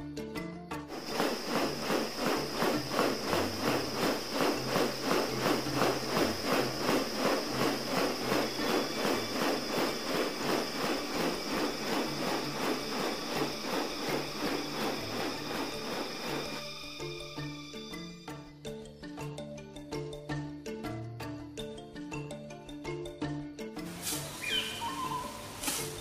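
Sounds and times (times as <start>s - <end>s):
background music with steady beat: 0.0s - 26.0s.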